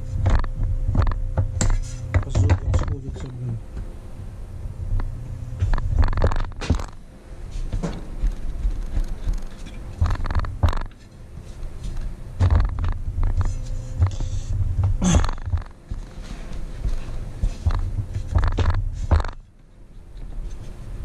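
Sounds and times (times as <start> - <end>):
tool shifted on bench rumble: 5.6 - 7.0, 7.6 - 11.2, 11.9 - 19.4.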